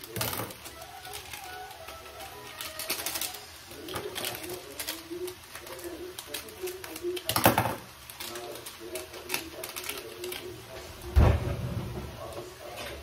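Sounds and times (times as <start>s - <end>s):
sachets rustling and clicking: 0.0s - 11.1s
dull thud: 11.2s - 12.1s.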